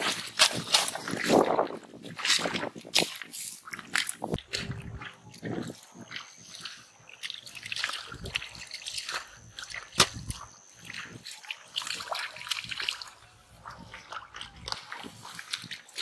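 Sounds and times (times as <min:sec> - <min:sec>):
muddy water splashing: 0:00.0 - 0:16.0
sharp slap on water: 0:09.9 - 0:10.3.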